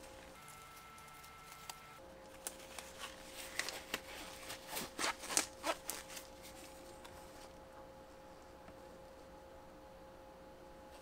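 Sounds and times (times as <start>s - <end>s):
gloved hands rustling: 0.0s - 7.6s.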